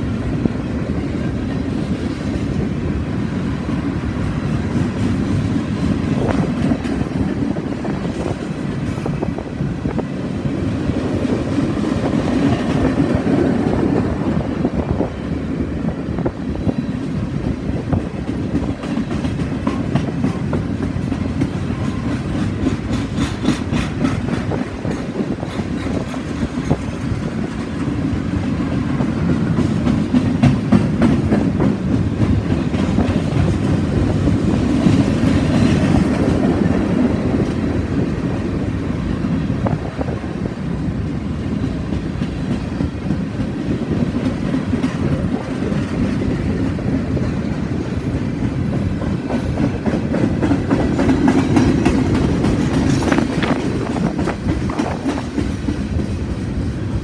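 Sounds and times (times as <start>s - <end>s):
train wheels rumbling on rails: 0.0s - 57.0s
wheels clicking over rail joints: 16.3s - 40.3s, 41.0s - 57.0s.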